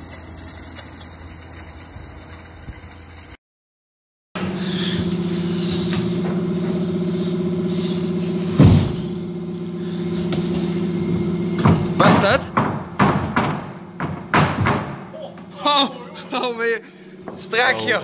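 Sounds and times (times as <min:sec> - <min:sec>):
mechanical hum: 0:00.0 - 0:03.4, 0:04.4 - 0:18.0
loud thump of floor plate: 0:08.6 - 0:09.1.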